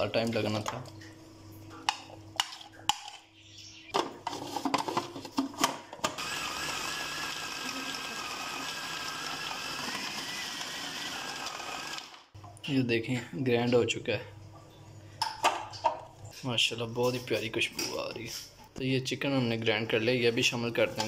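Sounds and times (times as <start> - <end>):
food processor motor running: 6.1 - 12.3.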